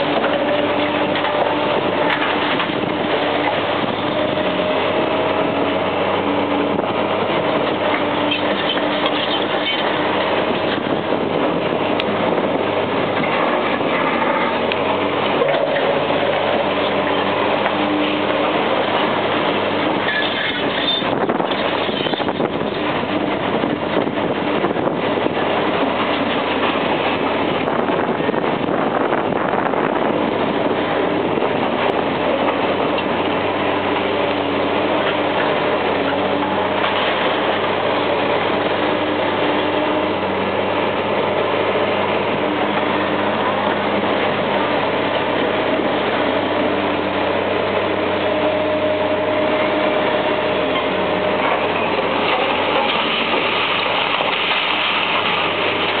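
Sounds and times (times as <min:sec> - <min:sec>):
excavator diesel engine running: 0:00.0 - 0:56.0
concrete crunching and rubble falling: 0:51.8 - 0:56.0.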